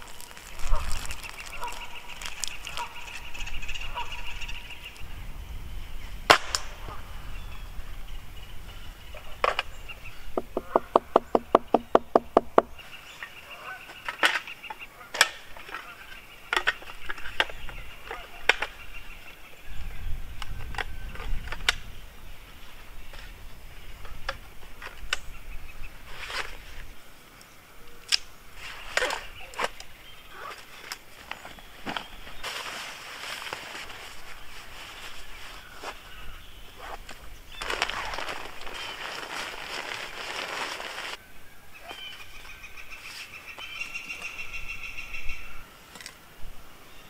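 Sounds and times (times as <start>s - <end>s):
camping gear clicks and knocks: 10.4s - 18.9s, 28.0s - 36.1s, 36.8s - 41.2s.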